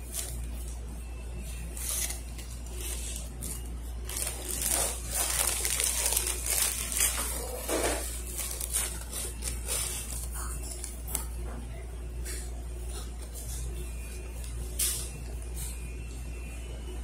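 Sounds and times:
paper wrapper crinkling: 0.0 - 0.8, 1.4 - 11.4.

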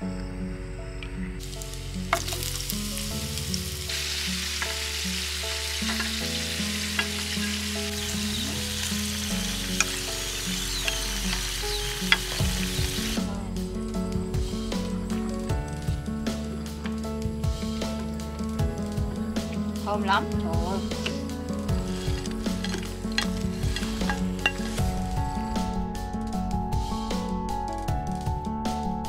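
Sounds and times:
oil sizzling in a frying pan: 1.4 - 13.2, 21.0 - 25.0
background music with steady beat: 5.4 - 29.0.

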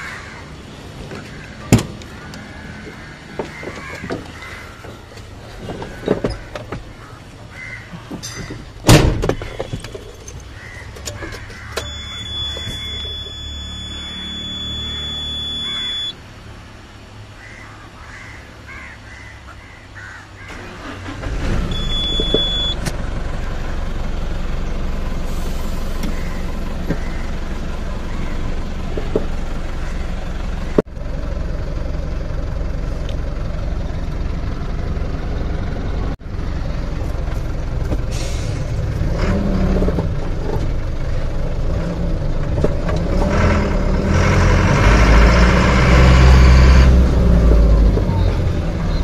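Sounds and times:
diesel engine starting and idling: 8.4 - 16.4, 20.3 - 49.0
door slamming: 8.9 - 9.4
low engine sound: 10.6 - 17.6, 20.4 - 49.0
high warning beep: 11.7 - 16.2, 21.7 - 22.8.

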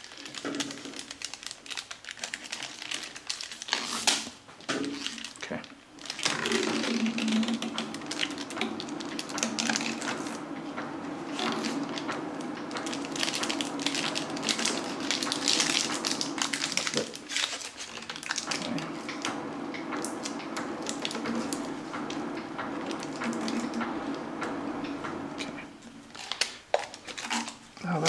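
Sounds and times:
wax paper crinkling: 0.0 - 10.4, 12.7 - 18.9, 26.1 - 27.9.

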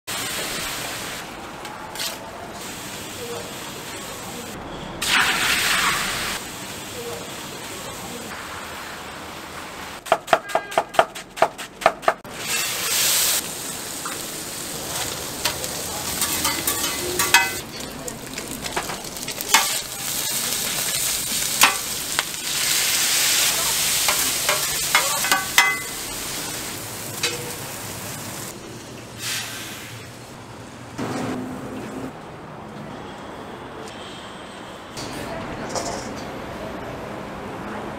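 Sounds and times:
food sizzling on a griddle: 0.1 - 1.3, 2.0 - 10.0, 12.3 - 28.6
metal spatula scraping griddle: 15.0 - 17.9.

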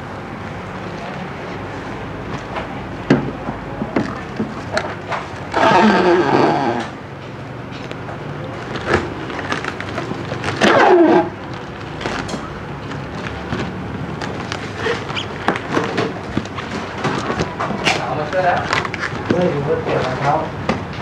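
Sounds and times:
busy market background noise: 0.0 - 21.0
plastic food containers handled: 2.4 - 5.6, 7.7 - 21.0.

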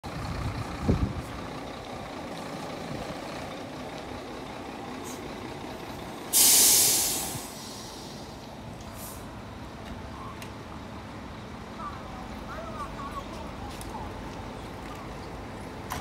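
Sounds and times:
diesel truck engine idling: 0.0 - 16.0
air brake hiss: 6.3 - 8.4.

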